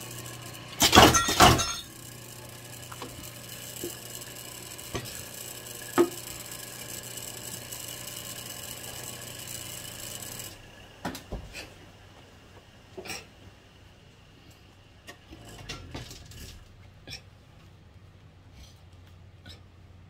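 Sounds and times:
press motor humming: 0.0s - 11.1s.

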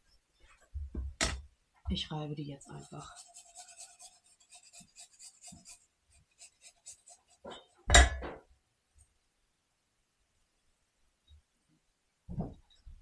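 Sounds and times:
garlic being grated: 2.6s - 7.9s.

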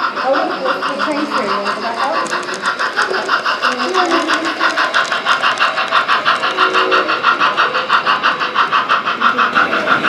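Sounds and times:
model steam locomotive chuffing: 0.0s - 10.0s.

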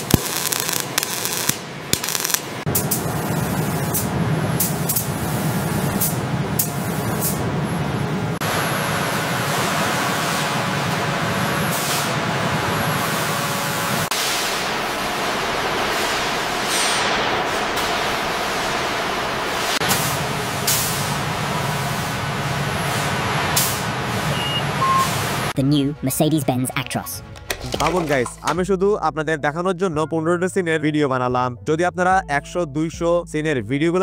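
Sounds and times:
hiss of spraying machinery: 14.1s - 25.4s
short high beeps: 24.3s - 25.1s.

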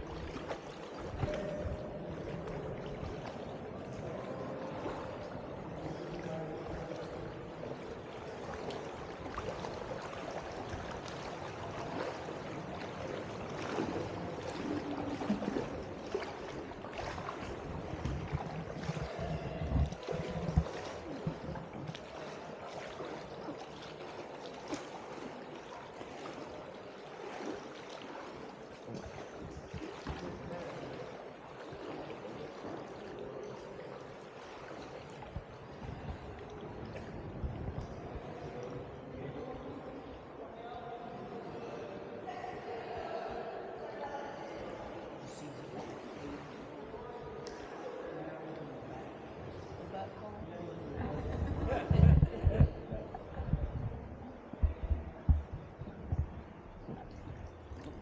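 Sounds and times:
river water lapping and splashing: 0.0s - 58.0s.

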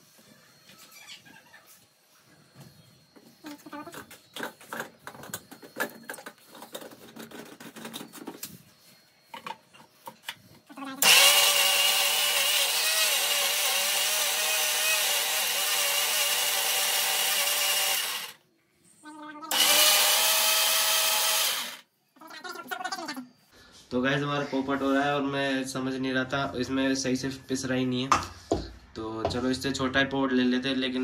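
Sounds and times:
mixer grinder running: 11.0s - 18.4s, 19.5s - 21.8s.

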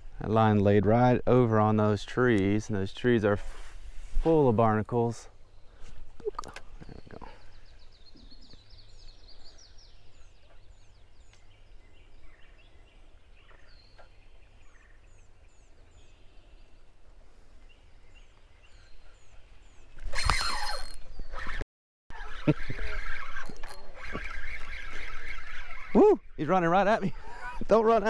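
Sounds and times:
bird calling: 17.8s - 27.7s.

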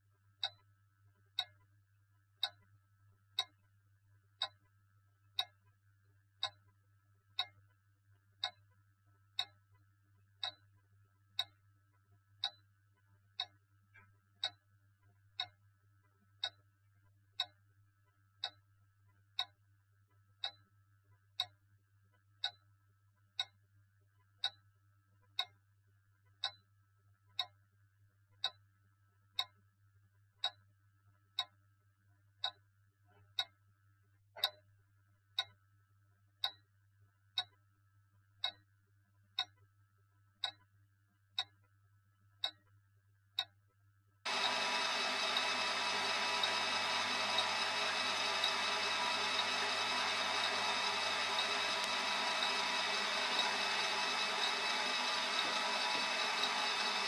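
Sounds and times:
clock ticking: 44.3s - 57.0s.

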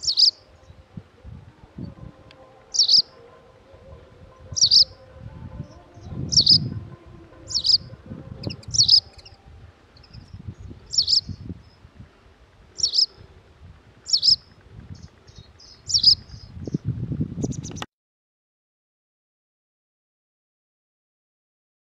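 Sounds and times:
wagtail calling: 0.0s - 11.8s, 12.7s - 13.2s, 14.0s - 16.5s
low rumble: 0.0s - 12.0s.

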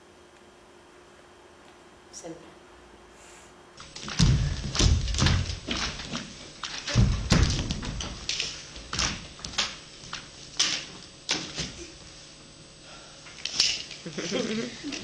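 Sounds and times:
heavy thuds: 3.8s - 9.6s
footsteps knocking on wooden stage: 4.0s - 8.3s.

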